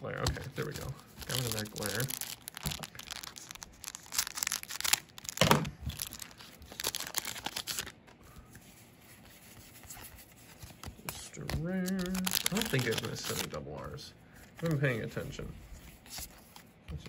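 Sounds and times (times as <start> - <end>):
card pack wrappers tearing and crinkling: 0.2 - 8.2, 10.8 - 14.0.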